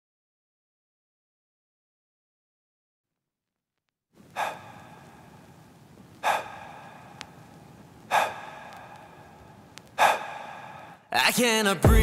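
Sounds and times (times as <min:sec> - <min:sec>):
sharp gasping breaths: 0:04.2 - 0:11.1.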